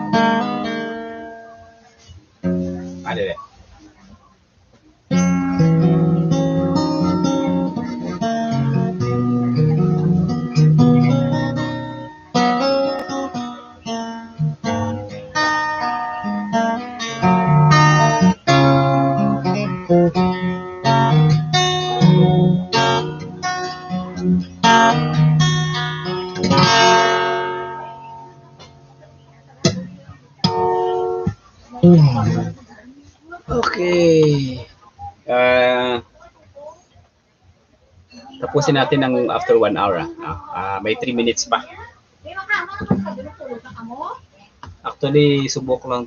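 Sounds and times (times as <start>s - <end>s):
acoustic guitar playing: 0.0s - 4.1s, 5.0s - 36.9s, 38.0s - 46.0s.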